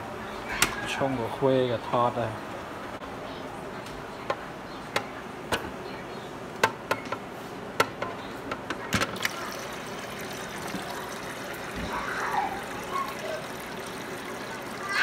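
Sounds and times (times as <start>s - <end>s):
water trickling into a container: 9.2s - 15.0s.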